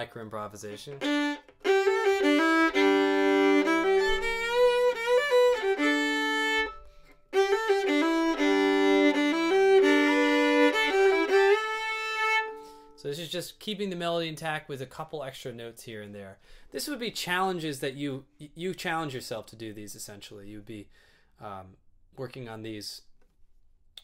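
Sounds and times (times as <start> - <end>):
solo fiddle melody: 0.6 - 13.0.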